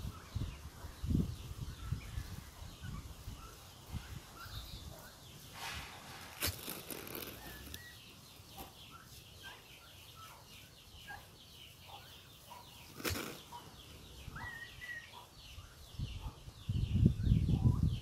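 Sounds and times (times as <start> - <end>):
faint bird chirps: 0.0 - 18.0
rustling whoosh of feathers: 5.4 - 7.9
turkeys whistled peeps: 11.0 - 15.8.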